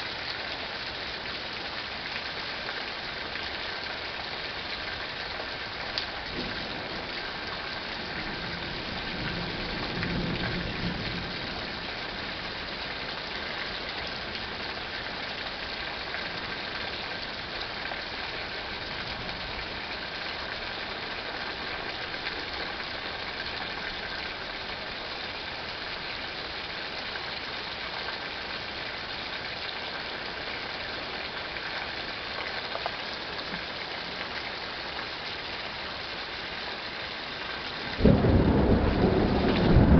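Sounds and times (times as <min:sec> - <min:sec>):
rain hiss: 0:00.0 - 0:39.9
distant thunder rumble: 0:38.0 - 0:39.9.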